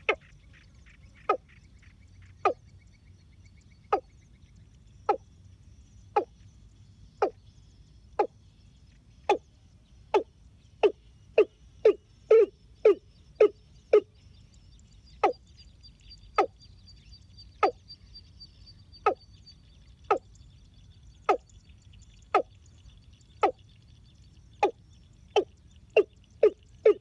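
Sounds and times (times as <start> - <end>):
bird calling sharp notes: 10.1 - 14.1, 25.4 - 27.0.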